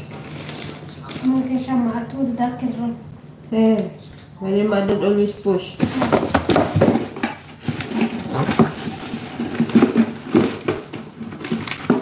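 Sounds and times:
cardboard box rustling and scraping: 5.8 - 12.0.

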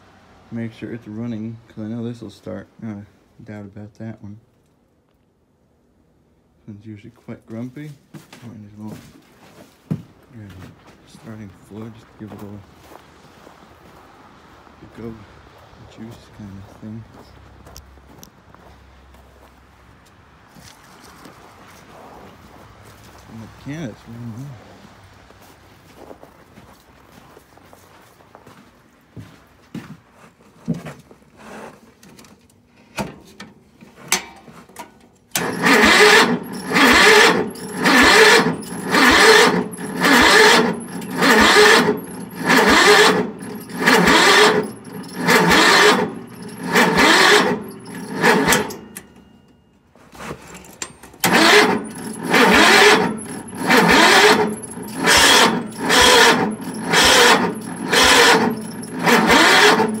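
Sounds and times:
engine cranking on starter: 35.3 - 49.4, 50.2 - 60.0.

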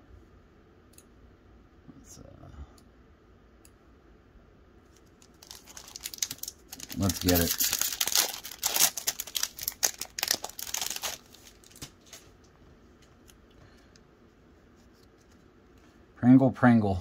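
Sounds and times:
foil wrapper crinkling and tearing: 5.2 - 12.3.

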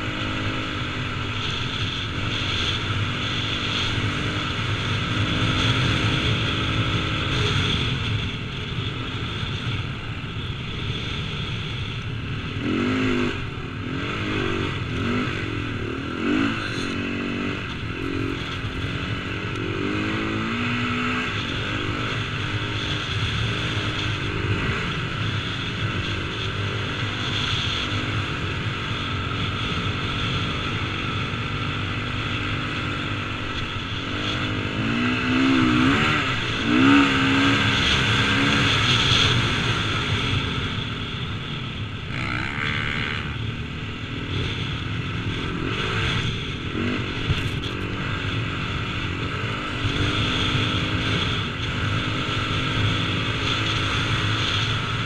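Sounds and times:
motocross bike engine revving: 12.3 - 55.0.

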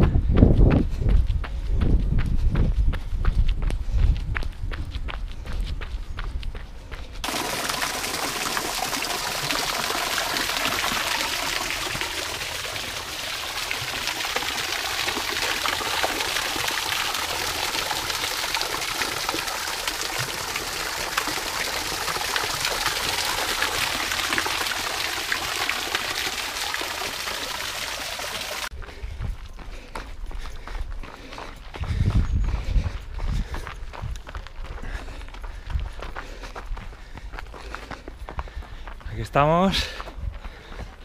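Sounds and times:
water splashing into fountain basin: 7.2 - 28.7.

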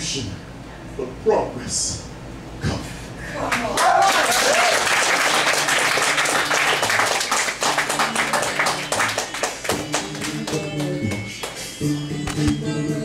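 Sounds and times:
audience applauding: 3.5 - 11.7.

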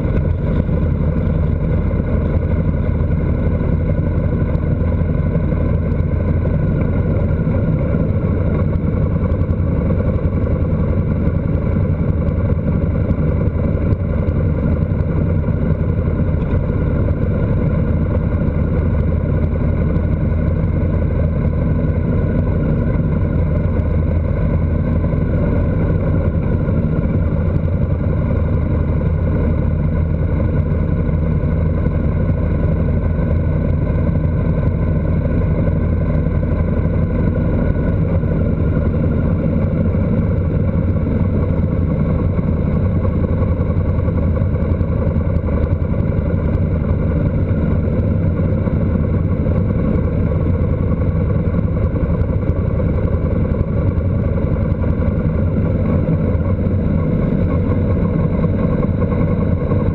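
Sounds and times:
road and wind noise: 0.0 - 59.9
vehicle engine cruising: 0.0 - 59.9.

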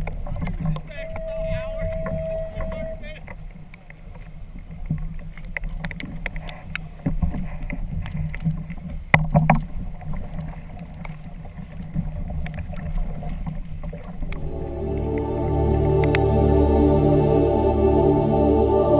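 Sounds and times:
water slapping against hull: 3.4 - 14.4
steady low rumble: 14.3 - 18.9.

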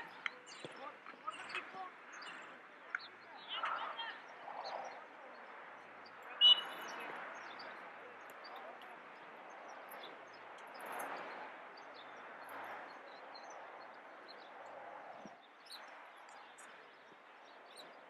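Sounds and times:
high bird chirps: 6.1 - 7.8.

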